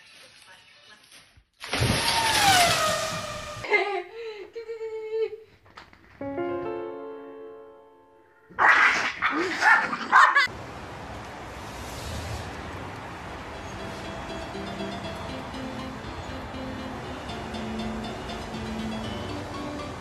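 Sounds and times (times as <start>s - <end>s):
dogs barking and yipping: 8.6s - 10.5s.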